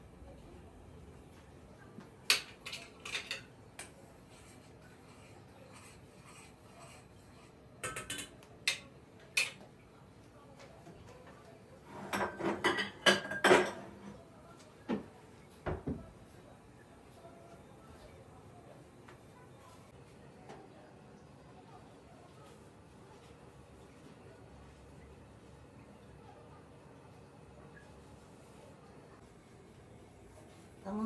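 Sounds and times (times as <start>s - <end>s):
dishes and cutlery clinking: 2.2s - 4.7s, 5.7s - 9.7s, 11.8s - 14.2s.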